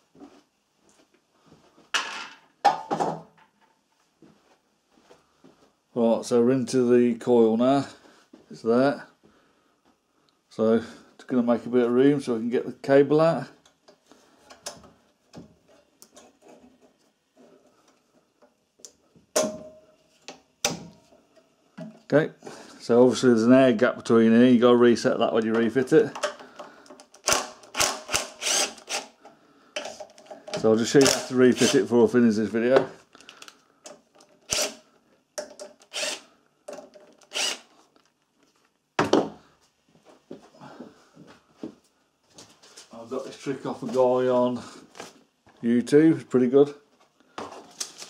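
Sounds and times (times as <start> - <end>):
cordless drill running: 27.2 - 29.2, 34.5 - 34.8, 35.9 - 36.3, 37.3 - 37.7.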